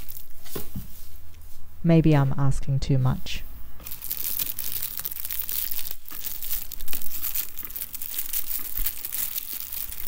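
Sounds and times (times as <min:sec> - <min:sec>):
plastic wrap crinkling: 0:00.0 - 0:00.8, 0:03.8 - 0:10.0.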